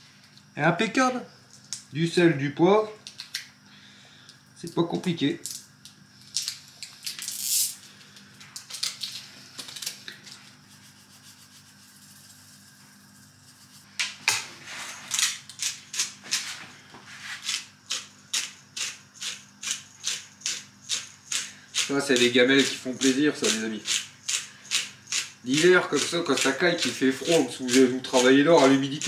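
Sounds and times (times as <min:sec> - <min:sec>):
gritty rubbing strokes: 0:10.5 - 0:15.2, 0:16.2 - 0:17.7.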